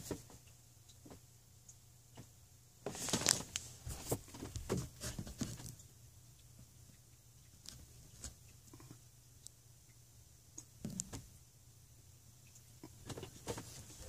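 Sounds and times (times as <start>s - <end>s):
rustling and scraping of handling: 2.2s - 5.9s, 12.8s - 14.0s.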